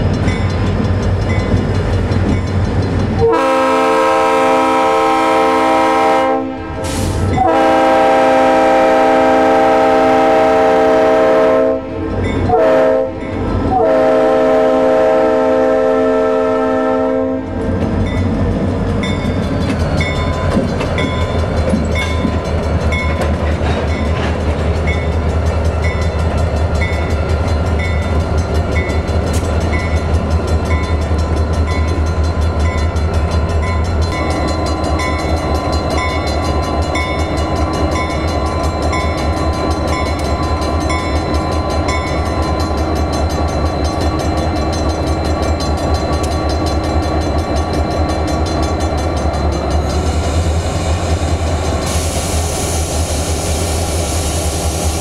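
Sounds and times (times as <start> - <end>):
crossing bell ringing: 0.0 - 10.2, 10.8 - 14.4, 16.6 - 50.6
diesel locomotives rumbling: 0.0 - 55.0
hiss: 6.8 - 7.3, 50.0 - 55.0.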